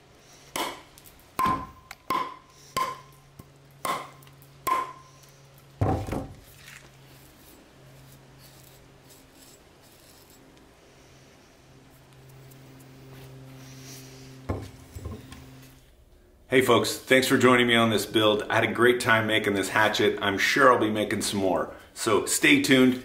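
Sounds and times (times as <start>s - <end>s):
hatchet chopping wood: 0.5s - 5.0s
board thumping on wooden stand: 5.8s - 6.4s, 14.5s - 15.3s.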